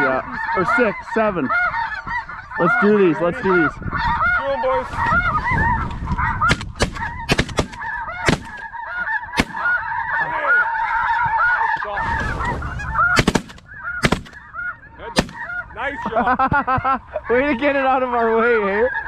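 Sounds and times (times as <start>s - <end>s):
geese honking: 0.0s - 19.0s
shotgun blasts: 6.5s - 8.6s, 9.4s - 9.7s, 13.2s - 14.4s, 15.2s - 15.6s.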